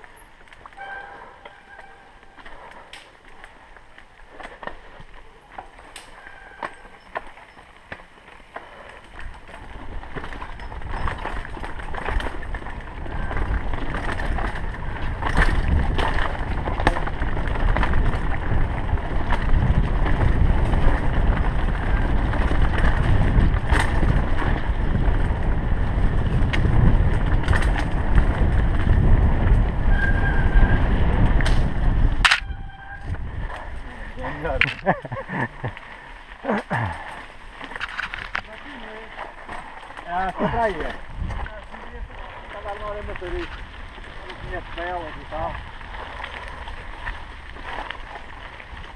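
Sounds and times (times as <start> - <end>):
tyres rolling on dirt: 0.0 - 48.9
bike knocks and rattles: 9.3 - 33.7
wind rushing over microphone: 9.7 - 35.7, 40.4 - 48.9.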